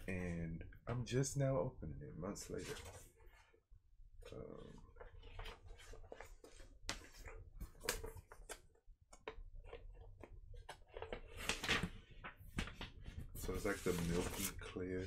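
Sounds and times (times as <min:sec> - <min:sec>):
paper record sleeve rustling: 0:04.7 - 0:15.0.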